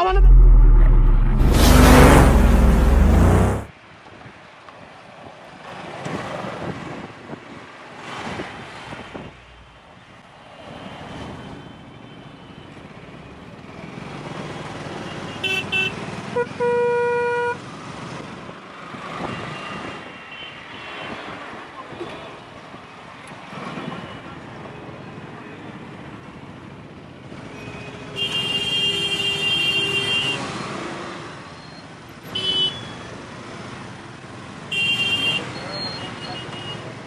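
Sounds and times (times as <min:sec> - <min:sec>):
motorcycle engine: 0:00.0 - 0:03.7
road noise: 0:00.0 - 0:16.8, 0:17.5 - 0:37.0
vehicle horn: 0:34.7 - 0:35.4.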